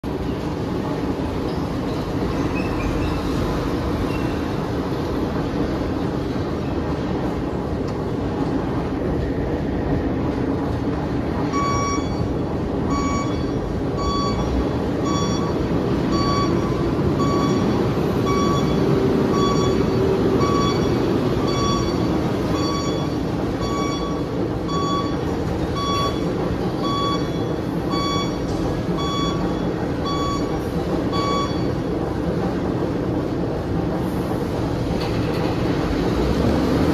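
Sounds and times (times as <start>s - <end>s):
heavy machinery running: 0.0s - 36.9s
truck reversing alarm beeps: 11.4s - 32.0s.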